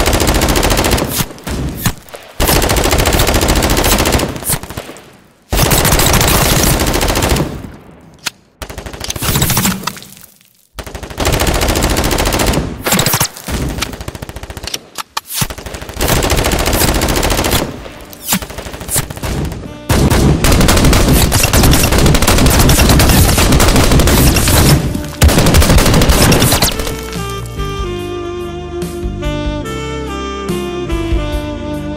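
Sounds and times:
automatic gunfire: 0.0 - 7.7, 15.5 - 27.2.

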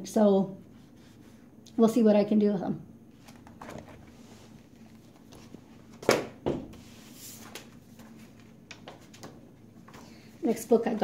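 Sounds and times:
paper rustling: 3.2 - 6.1, 6.9 - 10.3.

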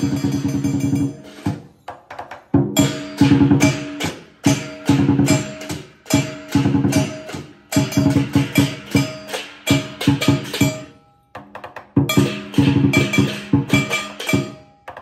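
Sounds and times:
gong: 0.0 - 1.6, 2.8 - 11.3, 12.1 - 14.9
cymbals: 0.0 - 11.4, 12.0 - 15.0
drum: 0.0 - 15.0.

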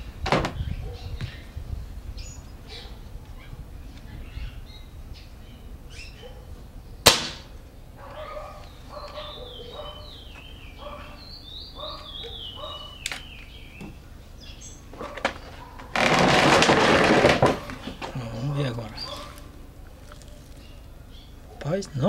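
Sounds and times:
birds singing: 0.0 - 16.2, 17.2 - 22.0
air rifle shot: 7.0 - 7.6.

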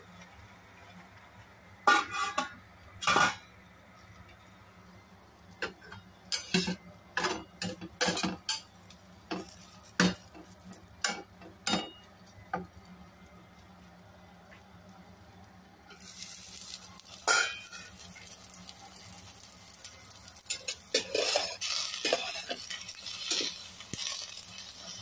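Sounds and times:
metal spatula scraping frying pan: 1.9 - 2.5, 17.2 - 18.0, 20.4 - 25.0.

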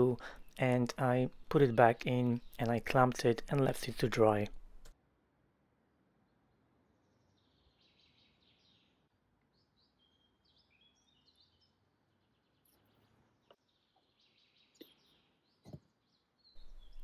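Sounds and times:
birds chirping: 0.0 - 4.9, 9.6 - 17.0.

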